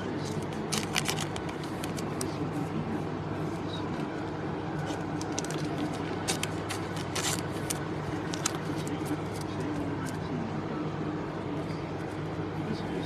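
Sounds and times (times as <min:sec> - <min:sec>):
card packs crackling: 0:00.0 - 0:02.5, 0:04.8 - 0:10.2
steady low hum: 0:00.0 - 0:13.0.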